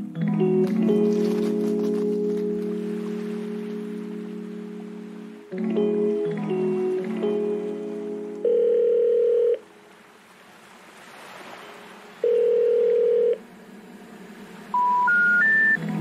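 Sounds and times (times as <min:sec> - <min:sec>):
telephone ringback tone: 0:08.4 - 0:09.6, 0:12.2 - 0:13.4, 0:14.8 - 0:15.8
rising short beeps: 0:14.8 - 0:15.8.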